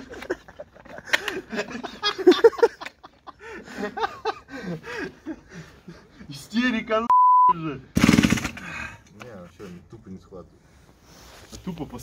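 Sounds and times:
men laughing: 0.0s - 6.4s.

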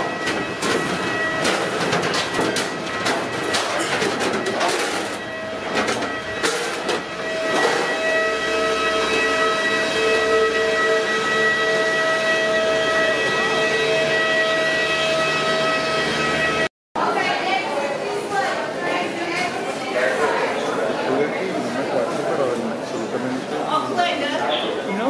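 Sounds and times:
jet engine whine: 0.0s - 16.7s.

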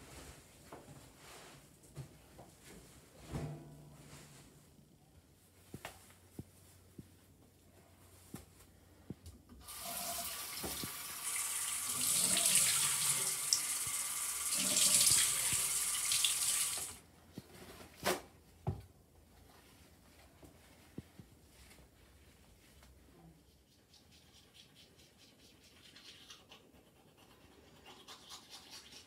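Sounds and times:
sink tap running: 9.6s - 17.0s.

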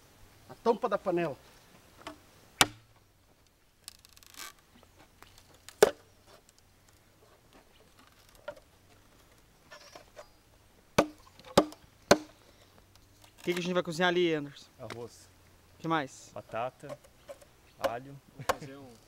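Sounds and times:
machete chopping bamboo: 2.0s - 2.9s, 5.7s - 6.0s, 11.0s - 12.4s.

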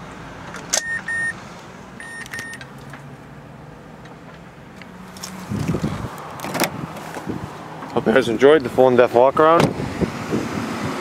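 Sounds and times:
car electronic chime beeping: 0.8s - 1.4s, 2.0s - 2.6s.

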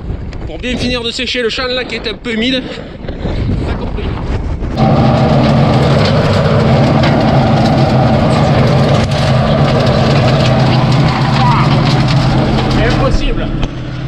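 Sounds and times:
wind buffeting microphone: 0.0s - 14.0s
tractor diesel engine under load: 4.8s - 14.0s.

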